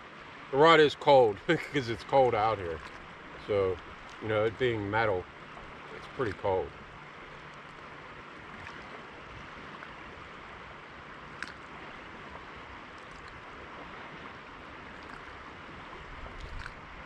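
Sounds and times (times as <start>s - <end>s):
river water rushing: 0.0s - 17.0s
small click: 11.4s - 11.6s.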